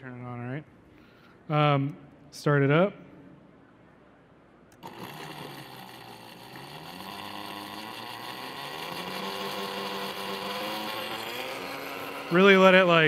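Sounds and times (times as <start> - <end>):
blender motor grinding: 4.8 - 13.0.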